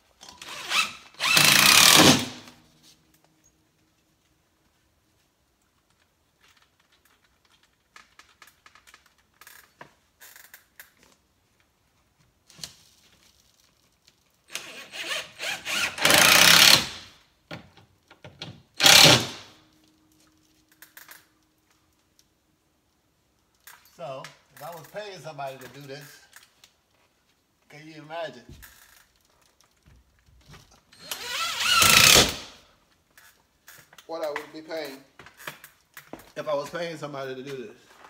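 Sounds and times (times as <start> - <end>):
cordless drill driving screws: 0.4 - 2.5, 14.5 - 17.1, 18.8 - 19.5, 30.9 - 32.6.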